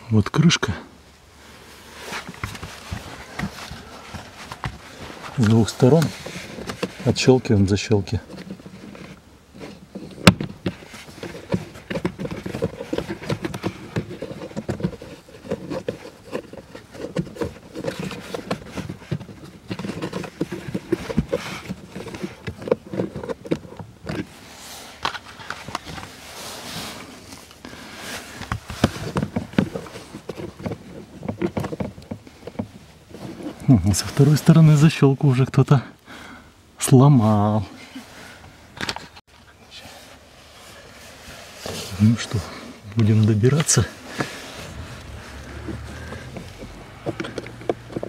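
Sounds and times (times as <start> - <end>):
plastic latches clicking and scraping: 8.2 - 24.3, 28.4 - 32.8, 43.0 - 48.0.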